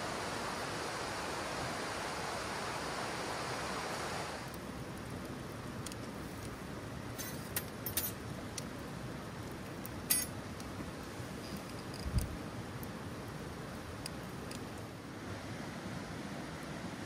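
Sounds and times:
steady hiss: 0:00.0 - 0:17.0
wood fire crackling and popping: 0:04.4 - 0:15.1.

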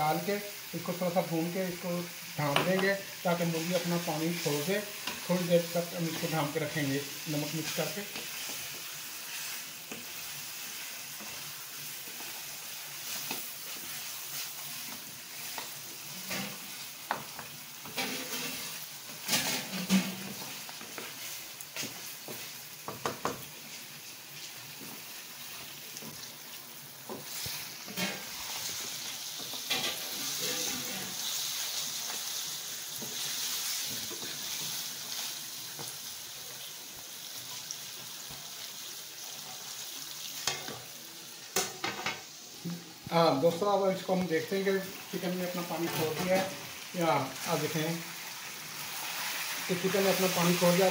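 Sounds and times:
chicken sizzling in hot oil: 0:00.0 - 0:50.9
wooden spatula scraping a wok: 0:02.7 - 0:22.6, 0:27.1 - 0:36.0.

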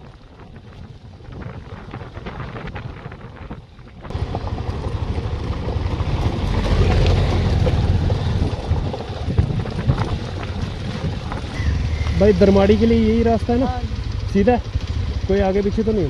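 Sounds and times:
wheels rumbling over stones: 0:00.0 - 0:16.0
wind buffeting microphone: 0:00.0 - 0:16.0
motorcycle engine: 0:04.0 - 0:16.0.

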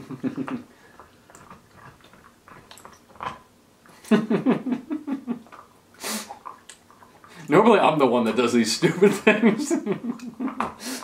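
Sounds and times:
man laughing: 0:04.1 - 0:05.4, 0:08.8 - 0:10.6
faint mouth sounds: 0:05.4 - 0:07.5.

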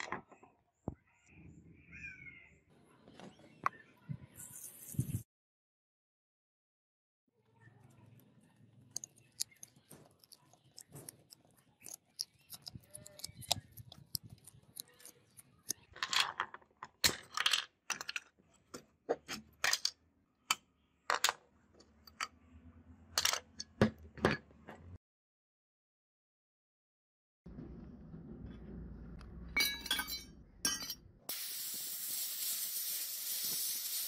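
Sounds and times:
screwdriver clicks and scrapes: 0:08.9 - 0:15.9.

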